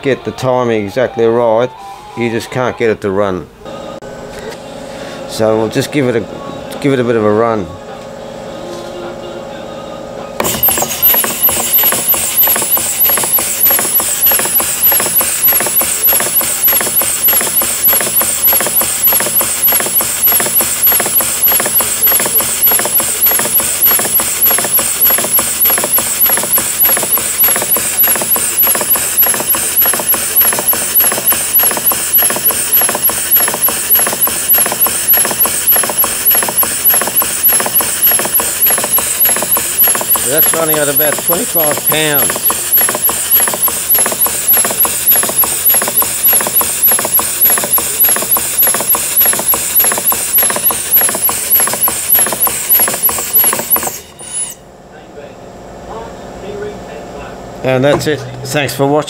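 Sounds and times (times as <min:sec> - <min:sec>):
steam engine chuffing: 0:10.4 - 0:54.4
air hissing: 0:10.4 - 0:54.5.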